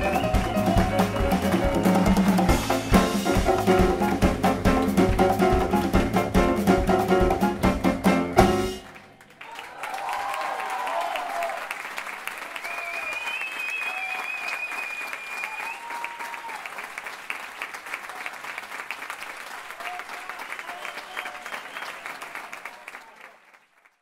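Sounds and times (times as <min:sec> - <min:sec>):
jazz quartet playing: 0:00.0 - 0:08.9
audience applauding: 0:00.0 - 0:24.0.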